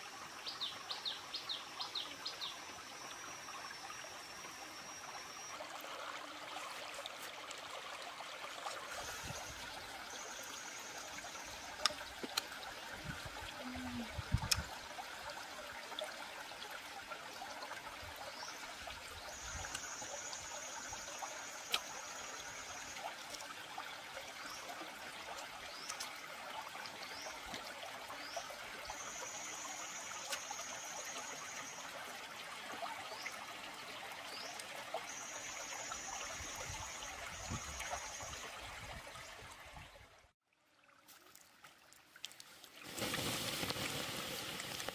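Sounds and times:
stream water trickling: 0:00.0 - 0:44.9
high steady buzzing tone: 0:02.0 - 0:06.5.

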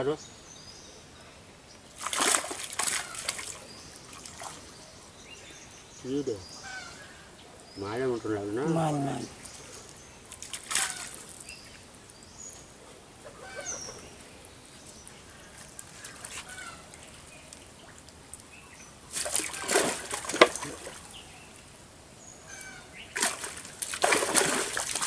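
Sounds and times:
water splashing and dripping: 0:01.9 - 0:04.7, 0:09.4 - 0:12.2, 0:15.6 - 0:21.2, 0:22.6 - 0:25.0
cast net drawn out of water: 0:02.0 - 0:04.6, 0:09.8 - 0:11.5, 0:19.1 - 0:21.1, 0:23.2 - 0:25.0.

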